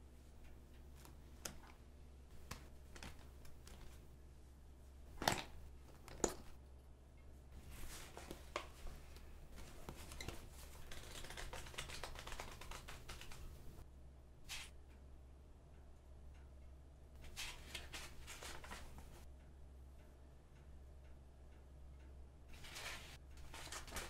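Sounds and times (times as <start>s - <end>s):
low steady hum: 0.0s - 24.0s
paper pages riffling: 10.0s - 13.5s, 22.6s - 24.0s.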